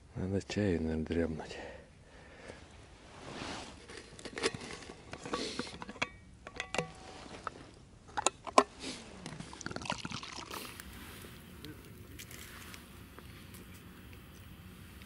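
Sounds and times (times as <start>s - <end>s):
thermos and cup knocking and clinking: 5.1s - 7.0s.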